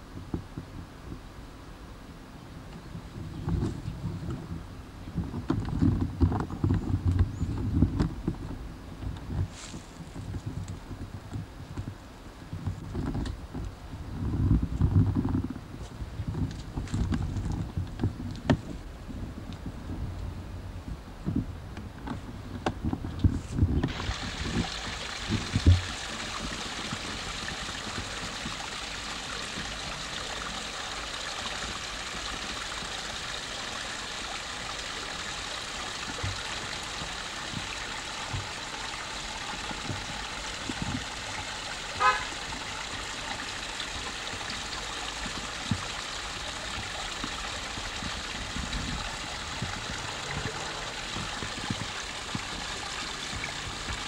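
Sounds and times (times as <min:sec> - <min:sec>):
low bumps: 0:22.2 - 0:54.0
water trickling over stones: 0:23.3 - 0:54.0
horn-like toot: 0:42.0 - 0:42.3.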